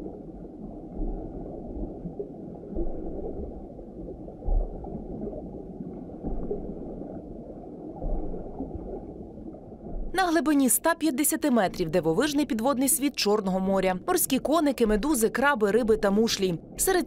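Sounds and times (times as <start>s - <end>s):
underwater low rumble: 0.0s - 10.2s, 16.0s - 16.8s
water gurgling: 0.0s - 17.0s
soft low thuds: 0.7s - 7.1s, 7.8s - 10.2s.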